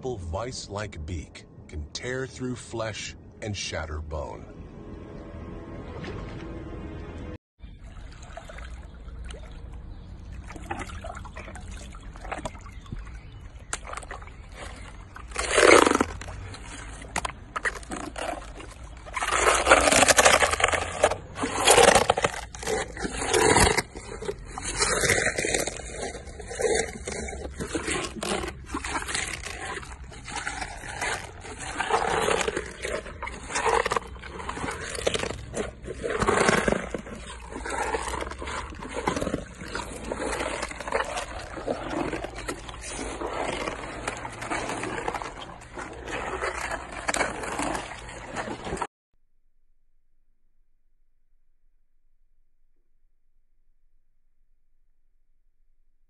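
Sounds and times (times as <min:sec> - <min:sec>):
hippopotamus chewing greens: 0:07.6 - 0:48.9.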